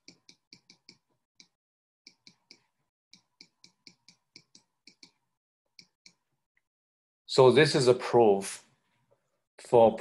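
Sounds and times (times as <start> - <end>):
stylus tapping on tablet screen: 0.0 - 6.2.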